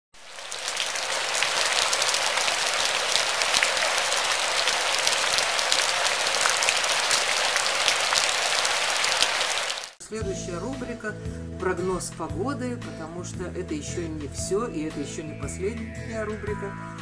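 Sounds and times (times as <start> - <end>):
raindrops ticking: 0.2 - 10.0
steady rain falling: 0.2 - 10.0.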